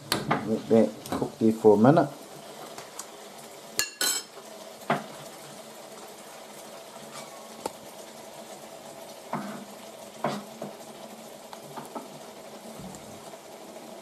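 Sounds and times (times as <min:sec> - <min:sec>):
mushrooms bubbling in a frying pan: 0:00.0 - 0:14.0.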